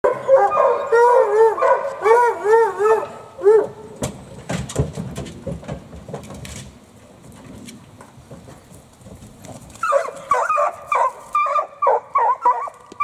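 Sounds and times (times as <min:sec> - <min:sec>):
hounds whining and yelping: 0:00.1 - 0:03.8, 0:09.8 - 0:13.0
sharp knocks and rattles: 0:04.0 - 0:09.7.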